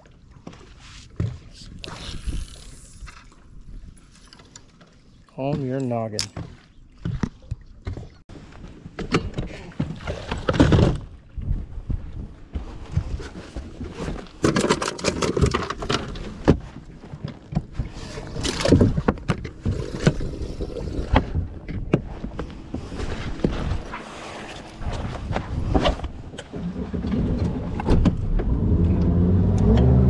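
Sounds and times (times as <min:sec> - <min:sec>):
knocks and clatter on boat: 0:04.8 - 0:20.3, 0:21.1 - 0:28.6.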